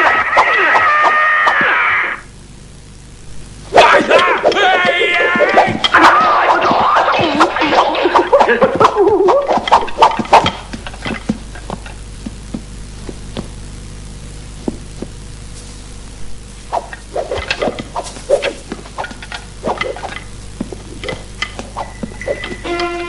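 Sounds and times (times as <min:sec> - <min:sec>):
low film soundtrack hum: 0:00.0 - 0:23.0
scuffing footsteps: 0:04.7 - 0:13.9, 0:14.5 - 0:22.7.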